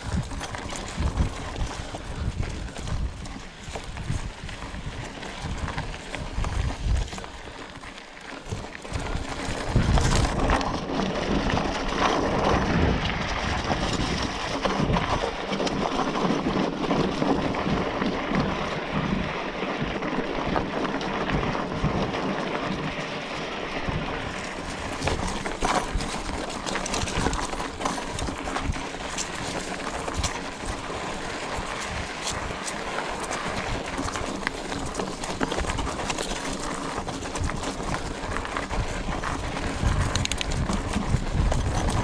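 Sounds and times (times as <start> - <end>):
bike rattling and knocking: 0.0 - 42.0
bike tyres crunching over stones: 0.0 - 42.0.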